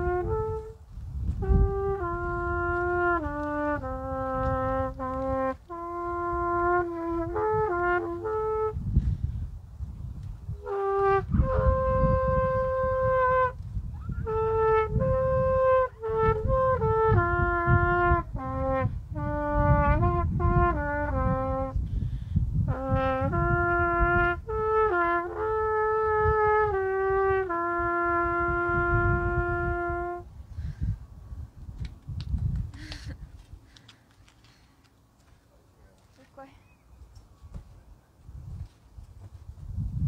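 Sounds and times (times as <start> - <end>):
solo trumpet melody: 0.0 - 9.4, 10.4 - 30.4.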